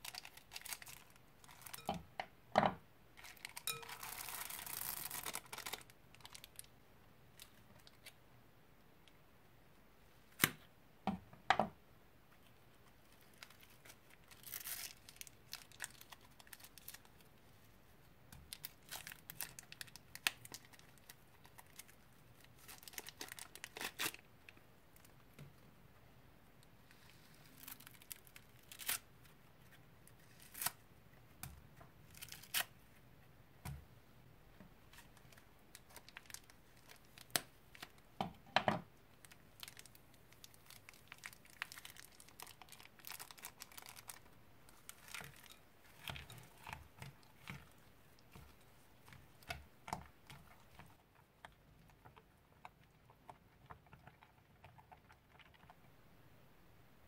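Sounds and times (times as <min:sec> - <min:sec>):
foam bead slime crackling: 0:00.0 - 0:01.9, 0:03.2 - 0:06.7, 0:12.9 - 0:17.6, 0:18.3 - 0:25.1, 0:35.0 - 0:38.0, 0:39.2 - 0:54.4
plastic bag crinkling: 0:00.0 - 0:01.9, 0:03.2 - 0:06.7, 0:13.0 - 0:17.2, 0:18.5 - 0:24.3, 0:35.0 - 0:38.0, 0:39.2 - 0:51.2.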